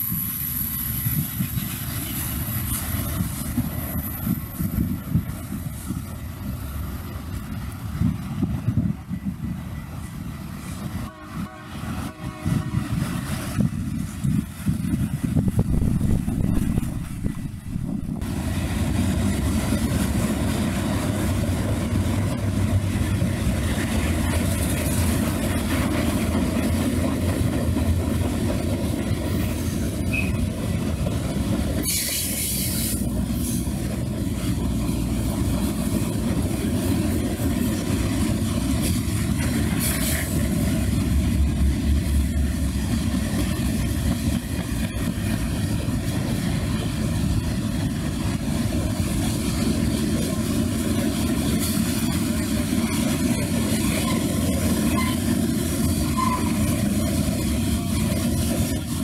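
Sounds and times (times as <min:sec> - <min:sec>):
train wheels rumbling on rails: 0:00.0 - 0:59.0
short high hiss: 0:31.8 - 0:33.6.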